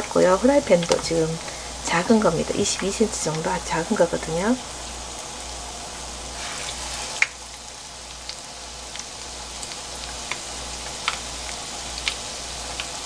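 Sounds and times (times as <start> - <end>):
oil crackles and pops: 0.0 - 1.7, 6.0 - 13.0
deep-frying oil sizzle: 0.0 - 13.0.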